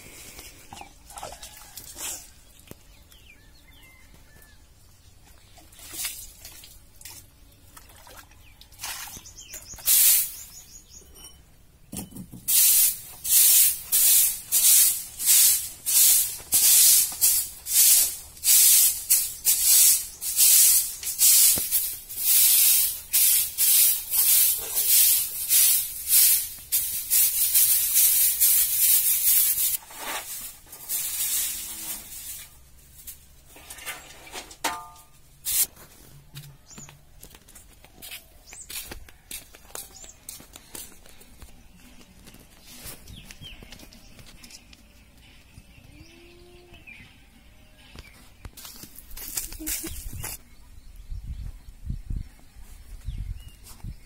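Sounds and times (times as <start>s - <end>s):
broom sweeping earthen floor: 9.6s - 10.7s, 12.4s - 34.8s, 35.4s - 36.1s, 48.6s - 50.4s.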